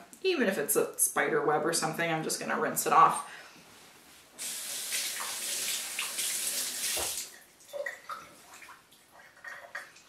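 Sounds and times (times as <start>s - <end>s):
tap water splashing: 4.9s - 10.0s.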